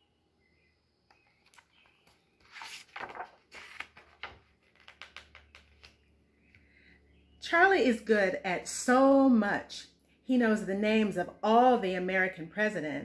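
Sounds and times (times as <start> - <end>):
book pages rustling: 1.2 - 6.0.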